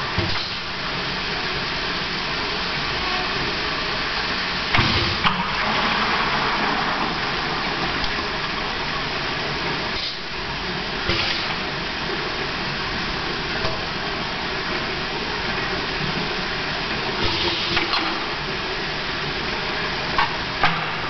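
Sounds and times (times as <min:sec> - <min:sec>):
liquid rushing into pail: 0:04.7 - 0:10.0.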